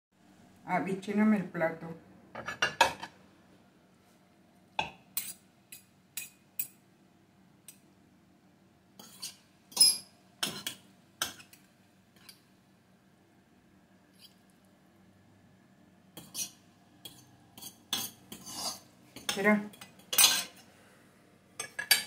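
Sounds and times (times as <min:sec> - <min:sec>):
metal utensil clinking on pot and plate: 0:16.2 - 0:20.6, 0:21.6 - 0:22.0.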